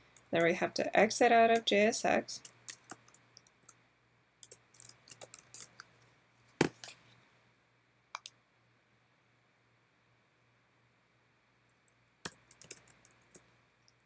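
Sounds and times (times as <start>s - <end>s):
computer keyboard keystrokes: 12.2s - 13.4s.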